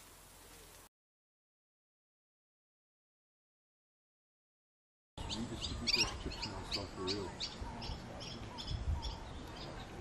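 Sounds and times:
birds chirping: 5.2 - 10.0.

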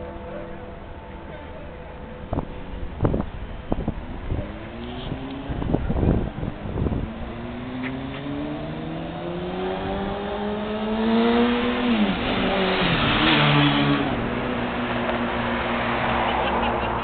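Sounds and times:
vehicle engine accelerating: 3.0 - 17.0.

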